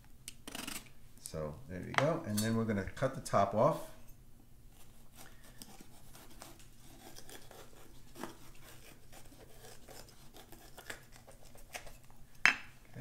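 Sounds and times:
knife cutting pepper: 0:04.8 - 0:12.1.

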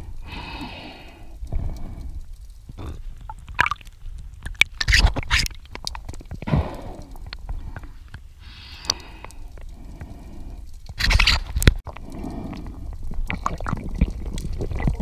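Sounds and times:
underwater knocks and scrapes: 0:02.3 - 0:06.5.

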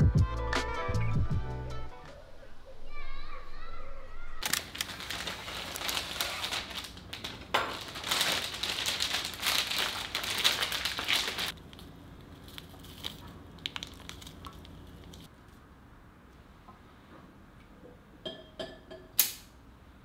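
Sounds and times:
dense crinkling and crackling: 0:04.4 - 0:15.3.

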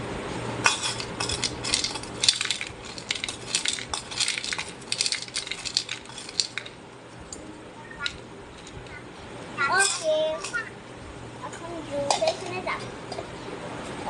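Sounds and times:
toy pieces clattering in bowl: 0:00.7 - 0:06.8, 0:09.8 - 0:10.6.

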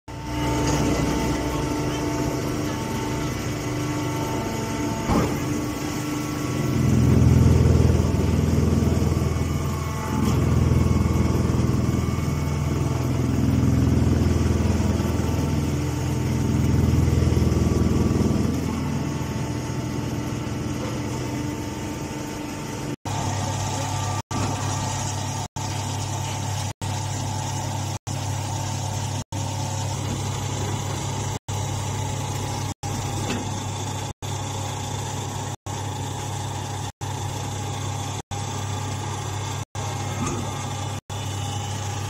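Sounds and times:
baler machine hum: 0:00.1 - 0:42.0.

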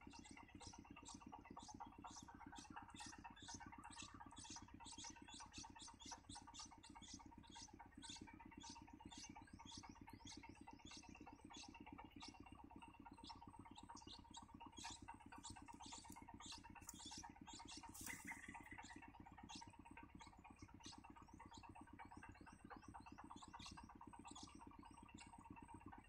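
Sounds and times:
faint low hum: 0:00.0 - 0:26.0
nestlings chirping: 0:13.2 - 0:20.2.

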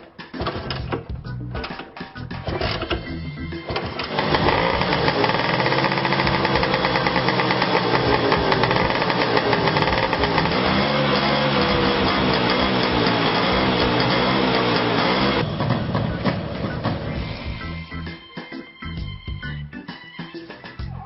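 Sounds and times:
scooter engine revving: 0:03.6 - 0:17.2.

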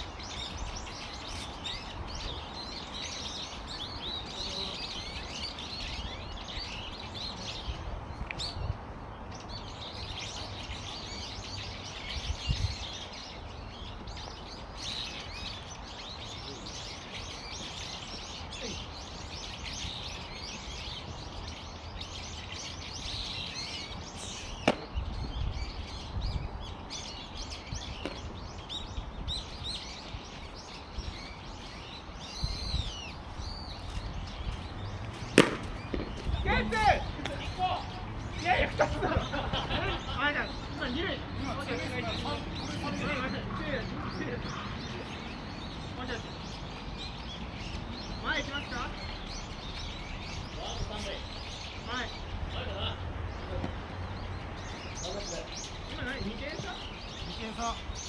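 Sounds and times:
wind rumbling on microphone: 0:00.0 - 0:41.4
small birds chirping: 0:00.0 - 0:58.0
sharp knock: 0:35.4 - 0:36.3.

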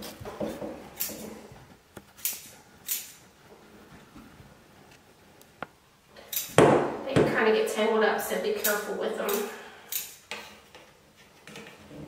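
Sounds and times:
scissors snipping cords: 0:08.6 - 0:10.2.

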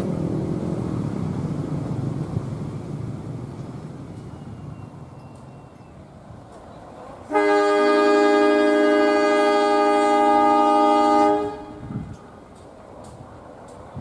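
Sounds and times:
locomotive air horn blast: 0:07.3 - 0:12.0.

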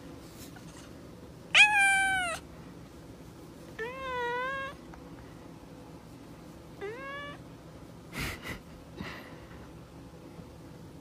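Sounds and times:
cat meowing: 0:01.5 - 0:02.4, 0:03.8 - 0:04.8, 0:06.8 - 0:07.4.

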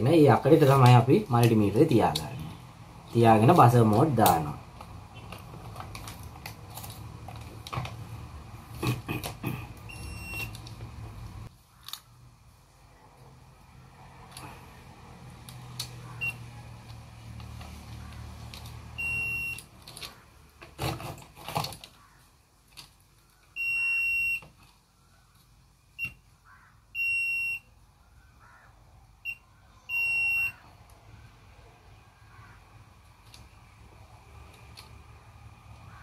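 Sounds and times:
handling noise: 0:03.4 - 0:12.0
multimeter beeping: 0:09.8 - 0:10.6, 0:16.2 - 0:16.4, 0:19.0 - 0:19.7, 0:23.6 - 0:24.4, 0:27.0 - 0:27.7, 0:29.3 - 0:30.6.

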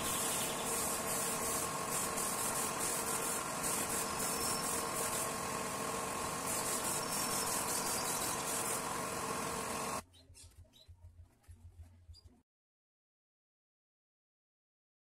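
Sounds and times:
mechanical hum with hiss: 0:00.0 - 0:10.0.

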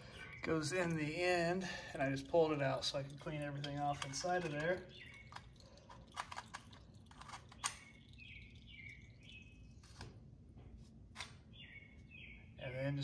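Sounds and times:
small bird chirping: 0:04.6 - 0:05.6, 0:07.4 - 0:10.0, 0:11.5 - 0:12.9.

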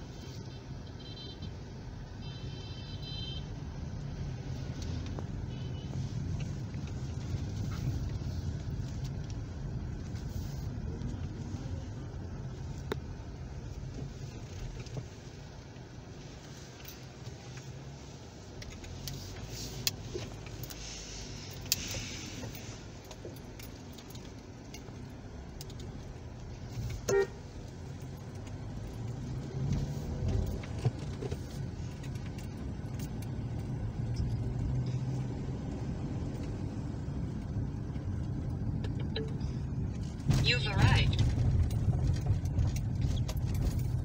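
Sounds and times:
car engine and road hum: 0:00.0 - 0:44.0
short car horn toot: 0:27.0 - 0:27.4.

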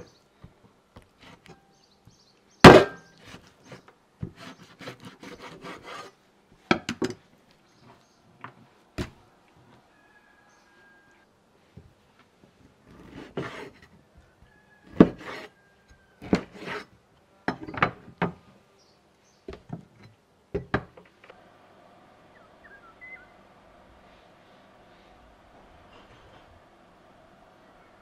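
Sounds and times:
knocks and scrapes of utensils: 0:16.2 - 0:16.9
faint chirps: 0:22.2 - 0:25.3.

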